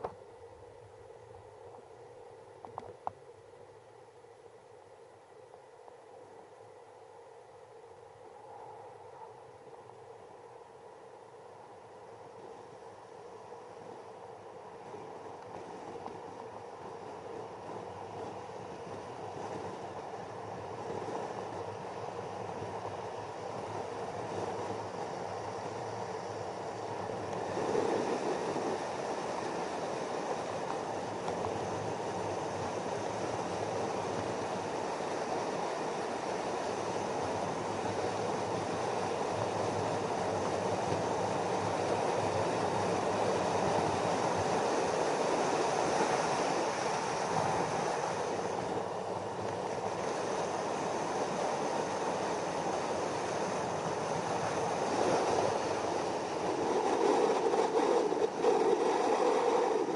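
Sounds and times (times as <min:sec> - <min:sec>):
wheels rolling over asphalt: 0:12.4 - 0:59.9
wind rushing on microphone: 0:13.7 - 0:59.9.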